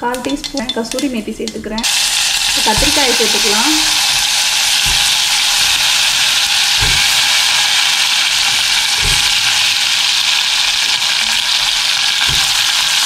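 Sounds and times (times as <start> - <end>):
oil sizzling in a pot: 0.0 - 13.0
soft low thumps: 2.5 - 5.6.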